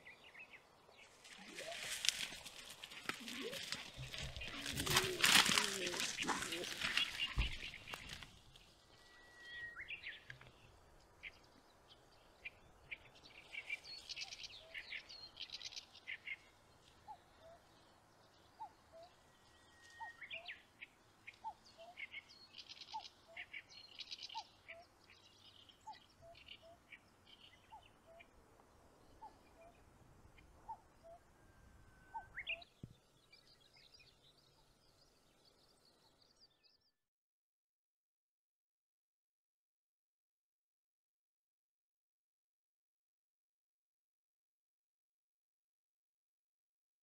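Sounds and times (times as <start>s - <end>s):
birds chirping: 0.0s - 36.9s
songbird whistle and flourish: 9.0s - 10.2s.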